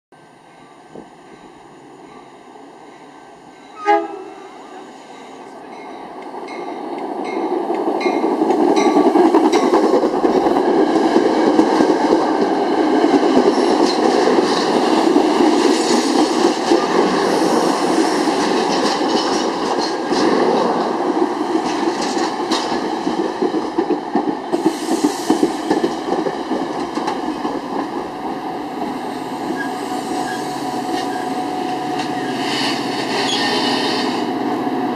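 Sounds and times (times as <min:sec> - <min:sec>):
train rumbling past: 0:00.2 - 0:34.9
train horn blast: 0:03.8 - 0:04.7.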